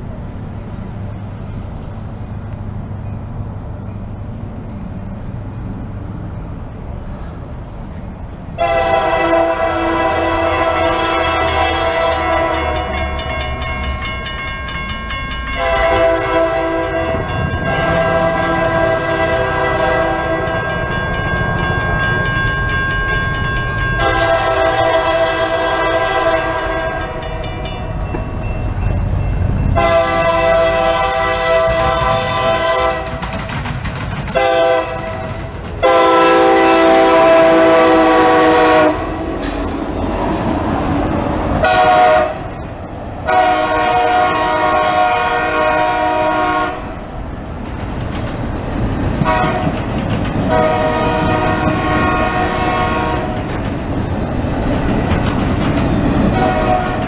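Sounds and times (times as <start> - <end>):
train rumbling and clattering on rails: 0.0 - 57.0
locomotive air horn blasts: 8.6 - 13.0, 15.5 - 20.9, 24.0 - 27.3, 29.8 - 33.3, 34.3 - 39.8, 41.6 - 42.5, 43.2 - 46.9, 49.2 - 49.8, 50.5 - 53.4, 56.3 - 57.0.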